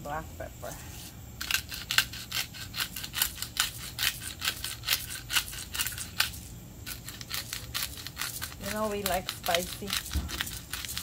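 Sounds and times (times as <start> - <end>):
pepper grinder crunching: 1.4 - 11.0.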